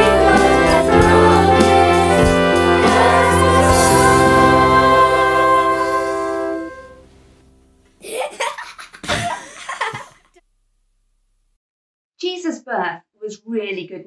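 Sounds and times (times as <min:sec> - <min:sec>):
children's choir with brass and strings: 0:00.0 - 0:07.3
child laughing: 0:08.0 - 0:10.4.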